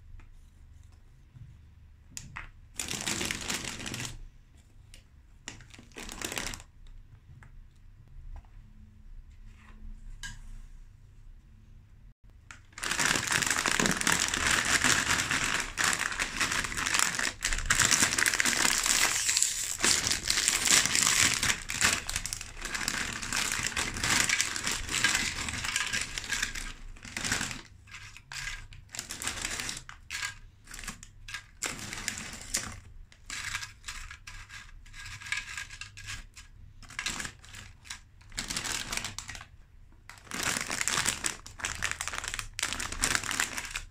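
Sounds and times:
foil snack bag crinkling: 12.7 - 27.7, 40.1 - 43.9.

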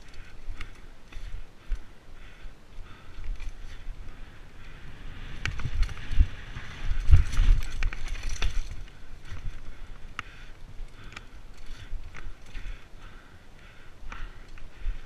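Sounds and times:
bike rattling over bumps: 0.0 - 15.0
bike tyres rolling on dirt: 0.0 - 15.0.

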